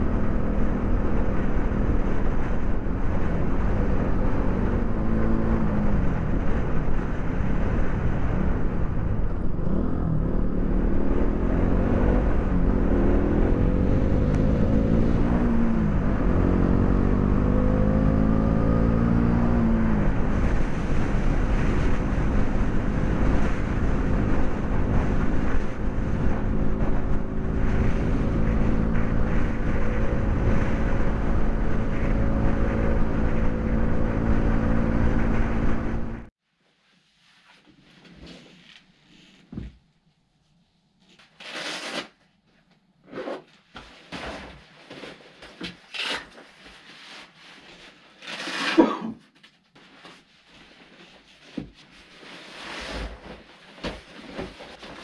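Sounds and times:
motorcycle engine accelerating: 0.0 - 36.3.

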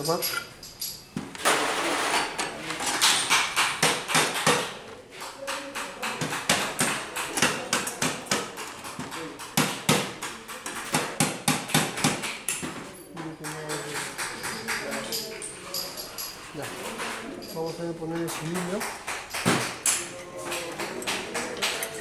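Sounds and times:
metal parts clinking on workbench: 0.0 - 3.5.

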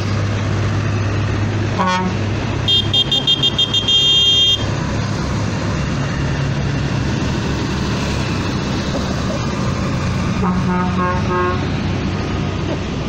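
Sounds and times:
tractor diesel engines running: 0.0 - 13.0
high-pitched horn toots: 1.8 - 4.7, 10.4 - 11.6.

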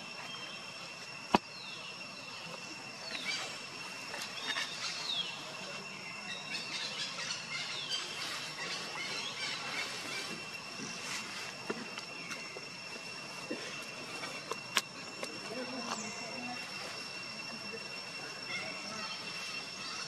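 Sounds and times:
high-pitched insect drone: 0.0 - 20.0
bird chirps: 0.2 - 13.0.

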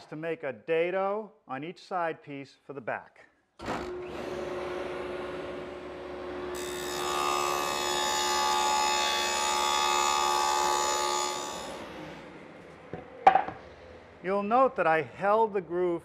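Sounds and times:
power tool cutting plywood: 3.6 - 12.2.

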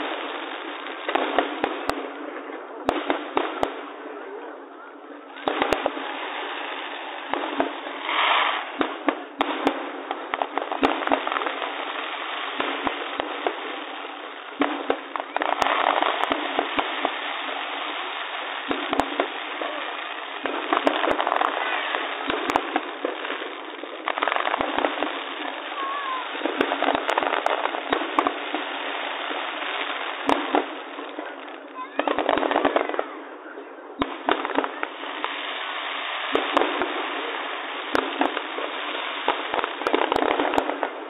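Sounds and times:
fireworks bangs and pops: 0.0 - 41.0.

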